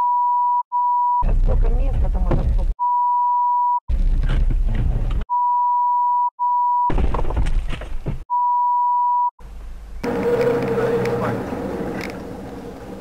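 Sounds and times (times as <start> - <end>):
high censor bleep: 0.0 - 1.3, 2.8 - 3.8, 5.3 - 6.9, 8.3 - 9.3
dashcam audio: 9.4 - 13.0.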